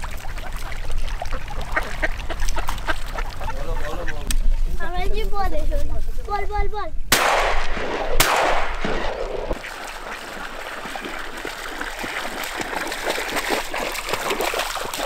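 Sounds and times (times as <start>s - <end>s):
dog swimming splashing: 0.0s - 3.8s, 9.6s - 15.0s
ducks quacking: 0.0s - 4.3s
shotgun shots echoing: 7.1s - 9.6s.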